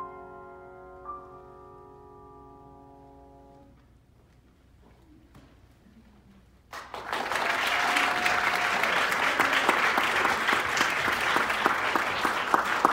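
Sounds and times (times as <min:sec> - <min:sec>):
audience applause: 0:06.7 - 0:12.9.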